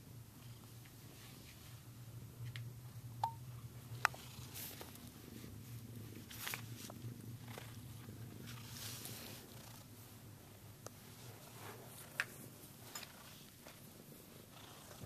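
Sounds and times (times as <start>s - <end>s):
cat purring: 3.8s - 15.0s.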